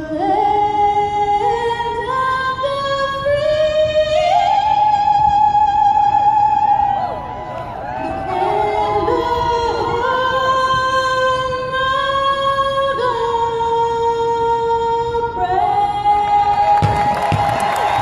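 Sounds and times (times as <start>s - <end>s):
crowd cheering and applause: 6.7s - 9.4s, 16.5s - 18.0s
girl singing sustained notes: 8.0s - 16.9s.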